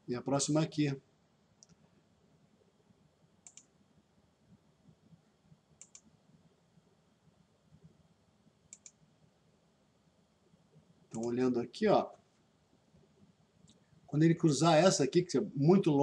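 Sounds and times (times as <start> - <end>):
computer mouse clicks: 3.4 - 3.7, 5.8 - 6.1, 8.7 - 9.0, 11.1 - 11.4.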